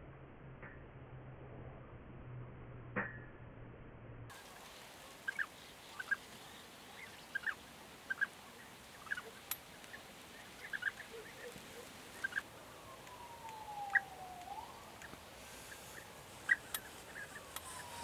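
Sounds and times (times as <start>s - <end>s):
long falling whine: 0.0s - 4.3s, 12.1s - 18.0s
birds calling: 4.3s - 18.0s.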